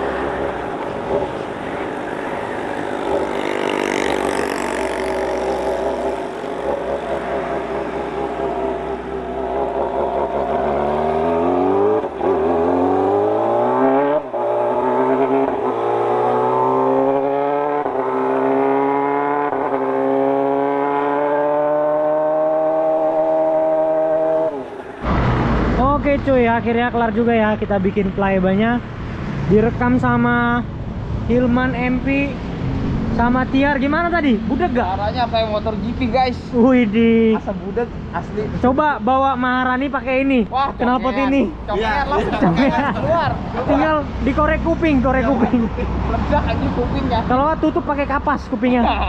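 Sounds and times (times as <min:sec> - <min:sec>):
motorcycle engine accelerating: 0:00.0 - 0:26.0.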